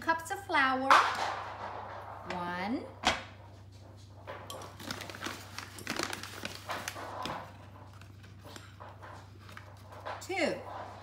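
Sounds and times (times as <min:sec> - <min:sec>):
paper bag rustling: 0:04.6 - 0:10.1.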